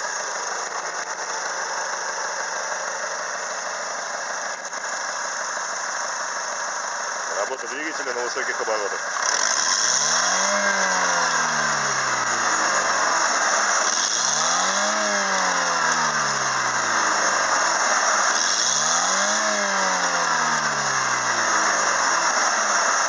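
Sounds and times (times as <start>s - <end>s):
steady high-pitched whine: 0.0s - 23.0s
car engine revving: 7.3s - 23.0s.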